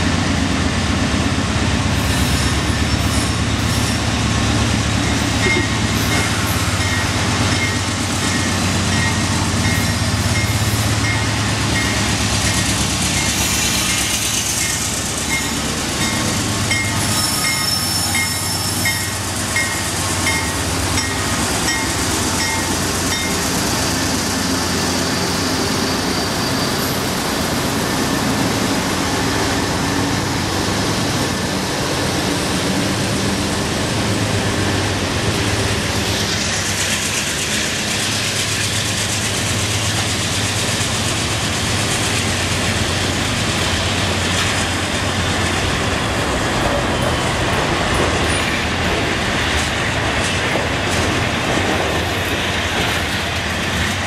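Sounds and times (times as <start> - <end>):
diesel locomotives working hard: 0.0 - 54.0
locomotive bell ringing: 15.3 - 23.4.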